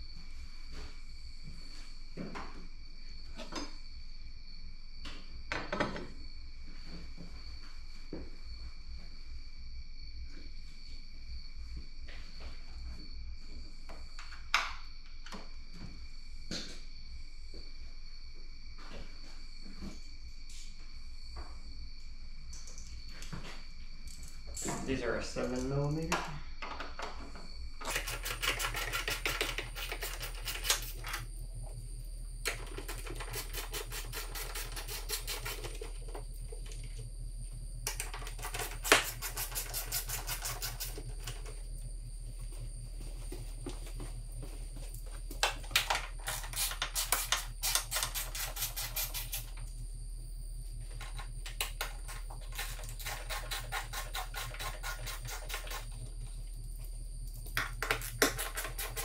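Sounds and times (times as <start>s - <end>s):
ratchet wrench clicking: 52.5s - 55.9s.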